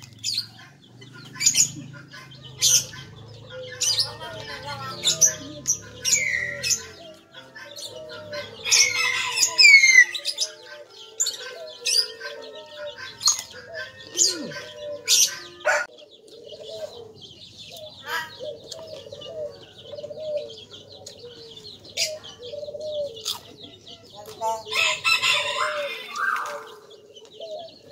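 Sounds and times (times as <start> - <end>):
birds chirping: 0.0 - 27.9
crunchy chewing: 23.2 - 23.6.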